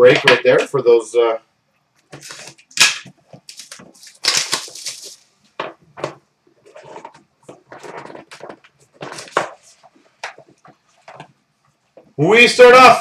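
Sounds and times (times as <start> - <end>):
cardboard and plastic crinkling: 2.1 - 11.4.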